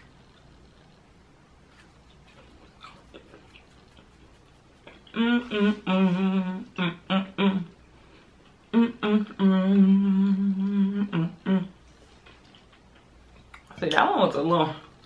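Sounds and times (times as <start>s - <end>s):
faint chewing clicks: 0.0s - 1.1s, 1.7s - 5.2s, 12.2s - 13.8s
woman humming: 5.0s - 7.8s, 8.7s - 11.8s.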